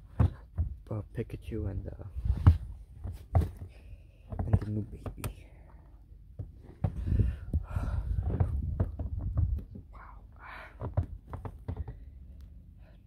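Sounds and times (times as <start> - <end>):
soft thumps and clicks: 6.4 - 10.1, 10.8 - 12.6.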